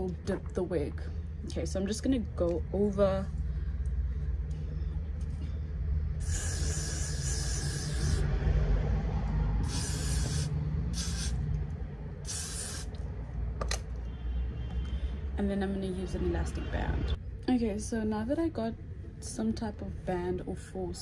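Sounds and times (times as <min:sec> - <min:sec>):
steady low hum: 0:00.0 - 0:14.3
aerosol spray hissing: 0:06.2 - 0:08.2, 0:09.6 - 0:11.4, 0:12.2 - 0:13.0.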